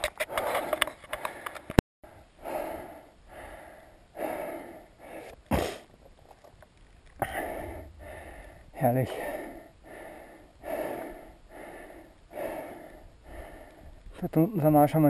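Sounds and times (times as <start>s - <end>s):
person breathing hard: 0.1s - 5.4s, 7.2s - 14.2s.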